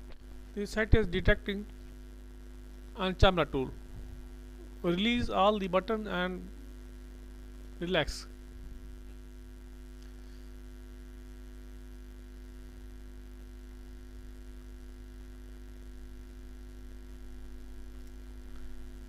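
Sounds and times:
electrical mains hum: 0.0s - 19.0s.

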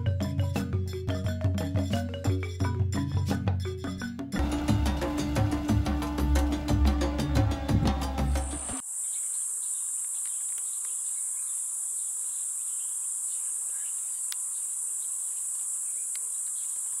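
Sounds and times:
insects droning: 7.9s - 17.0s.

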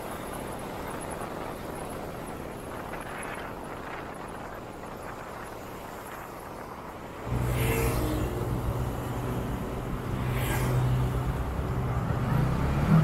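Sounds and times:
vehicle engine humming: 7.1s - 13.0s.

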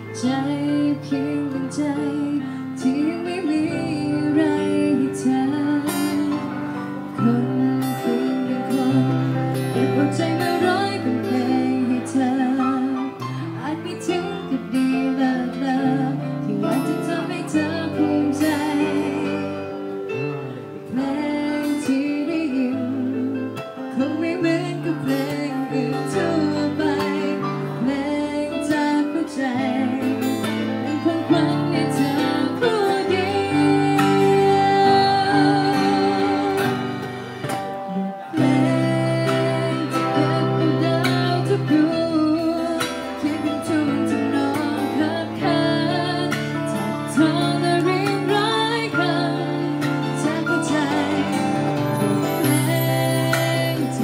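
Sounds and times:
guitar accompaniment: 0.0s - 54.0s
woman singing: 0.0s - 54.0s.

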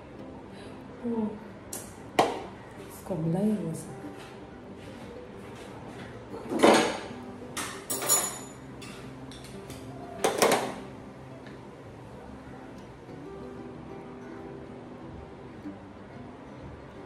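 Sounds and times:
kitchen containers and utensils clattering: 6.5s - 9.5s.

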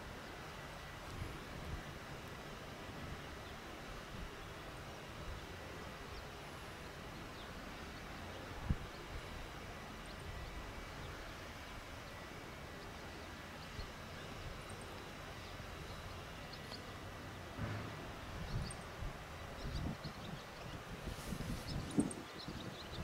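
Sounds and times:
low thumps: 17.6s - 18.8s
faint bird chirps: 18.4s - 23.0s.

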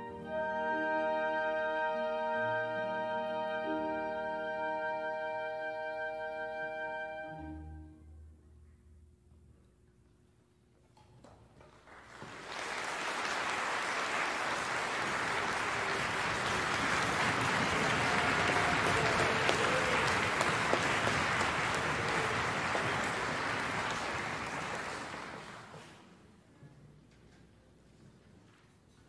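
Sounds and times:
audience applauding: 11.7s - 26.2s.

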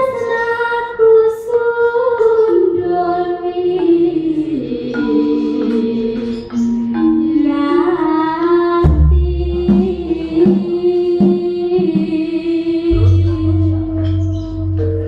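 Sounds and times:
woman singing: 0.0s - 15.0s
gong-chimes and metallophones: 4.8s - 12.1s, 12.9s - 15.0s.

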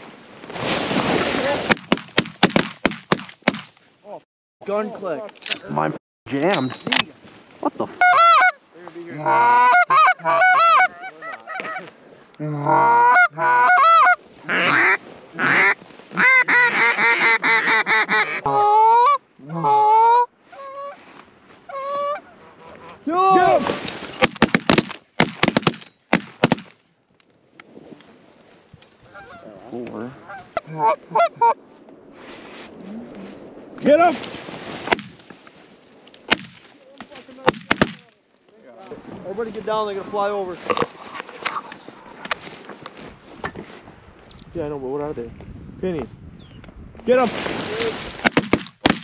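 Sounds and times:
goose call honks and clucks: 8.0s - 11.9s, 12.5s - 21.0s, 21.7s - 23.5s, 29.1s - 29.5s, 30.2s - 31.6s.

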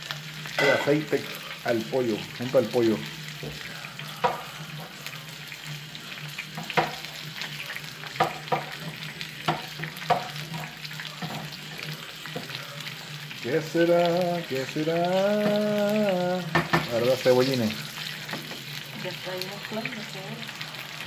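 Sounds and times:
chicken sizzling in oil: 0.0s - 21.0s
metal utensil scraping a pan: 0.5s - 1.3s.

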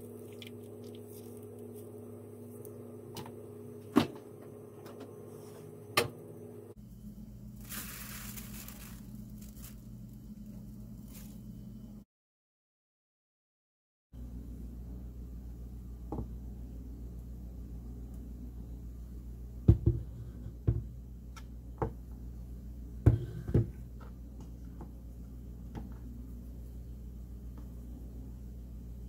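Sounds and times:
mixture pouring: 0.0s - 1.8s
steady low hum: 0.0s - 12.0s, 14.2s - 29.0s.

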